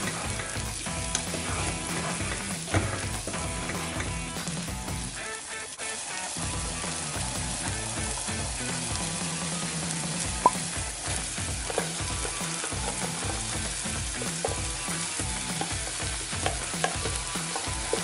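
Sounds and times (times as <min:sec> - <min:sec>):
sauce sizzling in a pan: 0:00.0 - 0:18.0
beans tipped into sizzling sauce: 0:10.2 - 0:18.0.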